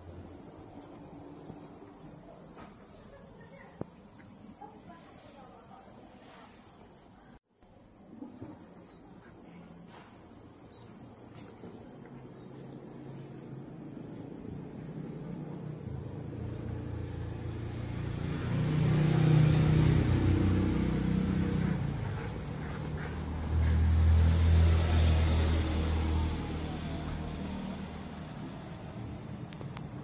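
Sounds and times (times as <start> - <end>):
vehicle engine running: 13.1 - 30.0.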